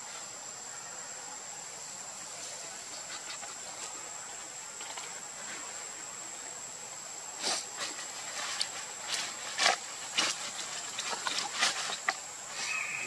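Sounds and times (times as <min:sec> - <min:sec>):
rustling and scraping: 0:02.3 - 0:05.8, 0:07.4 - 0:13.0.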